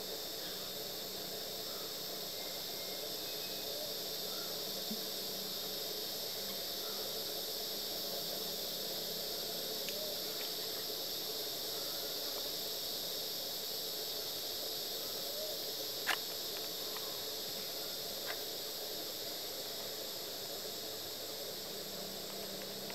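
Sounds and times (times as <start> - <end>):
insect chorus hissing: 0.0 - 22.9.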